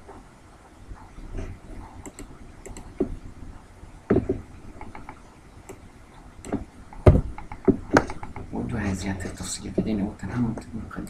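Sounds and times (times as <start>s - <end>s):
mouse clicks: 1.9s - 3.1s.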